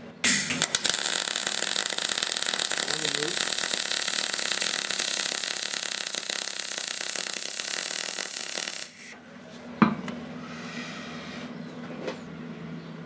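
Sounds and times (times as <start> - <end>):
welding arc crackling: 0.2 - 9.2.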